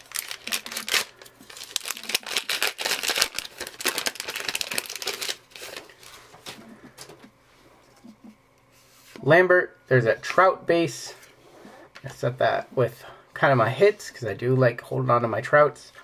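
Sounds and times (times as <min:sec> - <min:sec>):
wrapper crinkling and tearing: 0:00.0 - 0:06.1
cards rustling: 0:00.0 - 0:07.1.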